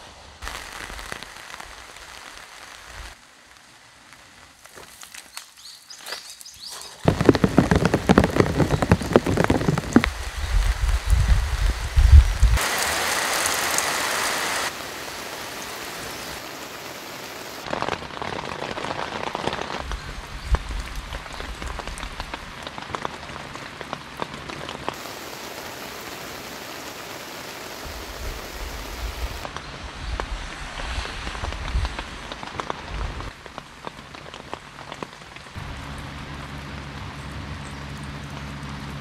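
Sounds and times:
rain pattering on a tarp: 0:00.0 - 0:39.0
steady rain: 0:00.0 - 0:39.0
scattered drips: 0:07.1 - 0:11.1.

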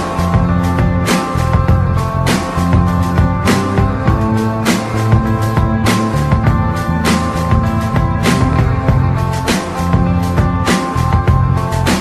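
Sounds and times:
strong drum hits: 0:07.6 - 0:10.1.

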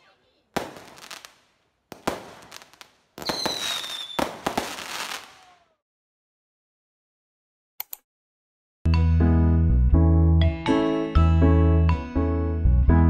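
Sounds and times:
fireworks bangs with crackle: 0:00.5 - 0:05.7
firework whistle: 0:03.2 - 0:05.7.

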